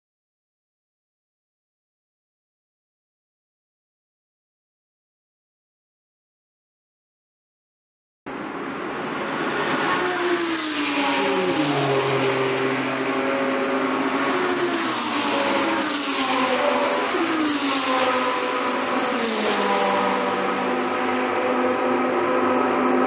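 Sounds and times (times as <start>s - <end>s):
race car engines accelerating: 8.3s - 23.0s.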